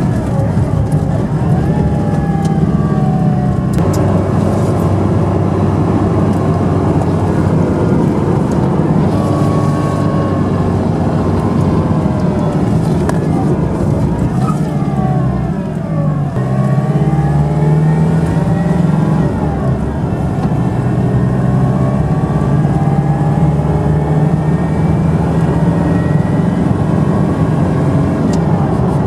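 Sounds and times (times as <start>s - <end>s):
diesel engine drone from inside cab: 0.0s - 29.0s
whining tones gliding in pitch: 0.9s - 28.8s.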